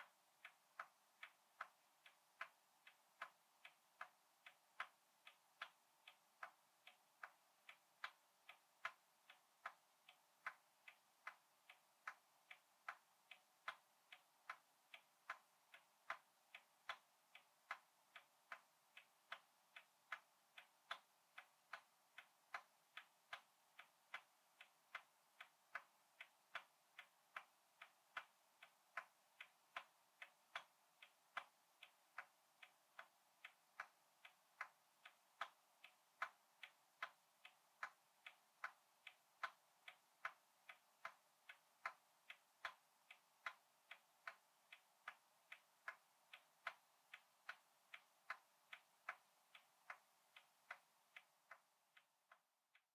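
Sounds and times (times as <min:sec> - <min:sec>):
clock ticking: 0:00.0 - 0:52.9.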